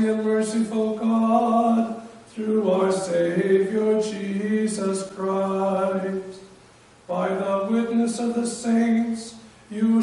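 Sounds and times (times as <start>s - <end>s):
man chanting: 0.0s - 6.4s, 7.1s - 10.0s.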